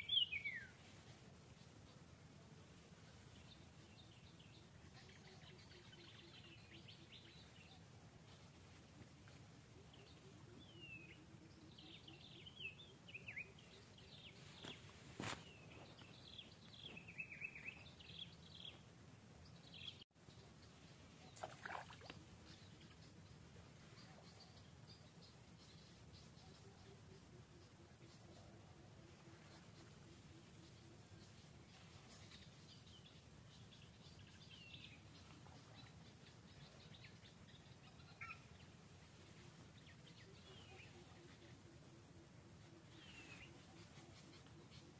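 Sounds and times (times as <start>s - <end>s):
steady high hiss: 0.0s - 21.3s.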